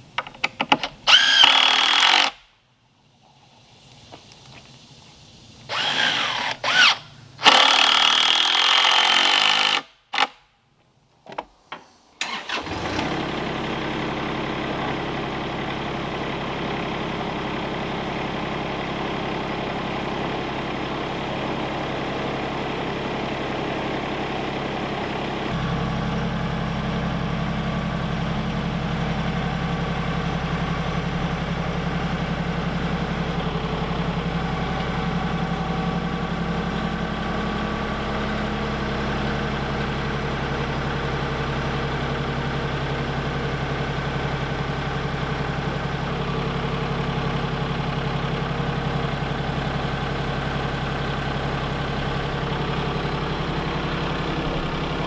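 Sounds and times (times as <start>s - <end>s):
tractor engine running: 0.0s - 10.4s, 11.1s - 55.0s
cordless drill driving screws: 1.1s - 2.4s, 5.7s - 10.3s.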